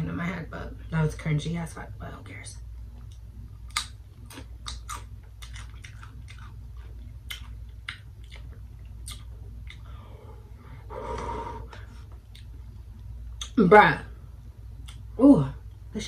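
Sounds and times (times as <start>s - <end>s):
tortilla chip crunching: 3.0s - 9.8s.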